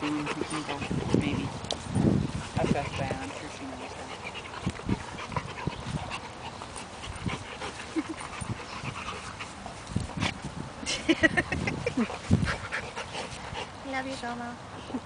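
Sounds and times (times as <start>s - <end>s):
dogs scuffling: 0.0s - 10.5s.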